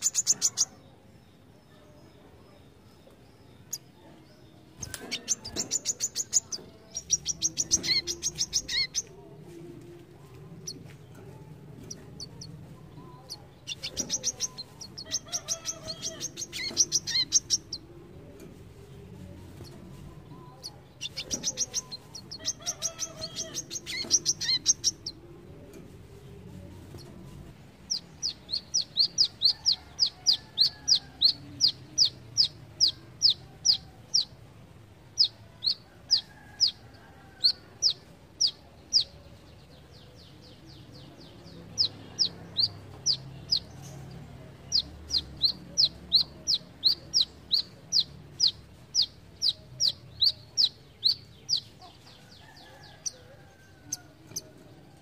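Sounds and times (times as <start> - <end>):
bird singing: 11.9 - 17.9.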